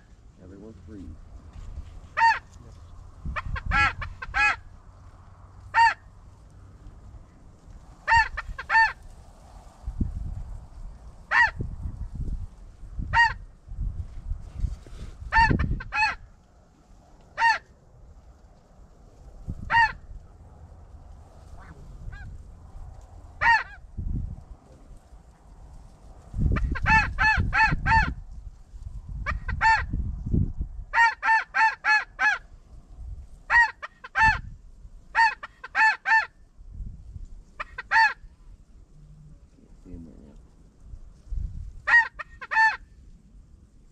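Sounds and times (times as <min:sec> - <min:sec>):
wind rumble on microphone: 0:00.0 - 0:35.7, 0:36.3 - 0:43.9
snow goose honks: 0:02.1 - 0:02.5, 0:03.4 - 0:04.6, 0:05.7 - 0:06.0, 0:08.1 - 0:09.0, 0:11.3 - 0:11.6, 0:13.2 - 0:13.4, 0:15.3 - 0:16.2, 0:17.4 - 0:17.6, 0:19.7 - 0:20.0, 0:23.4 - 0:23.8, 0:26.6 - 0:28.1, 0:29.3 - 0:29.9, 0:31.0 - 0:32.4, 0:33.5 - 0:34.4, 0:35.1 - 0:36.3, 0:37.6 - 0:38.2, 0:41.8 - 0:42.9.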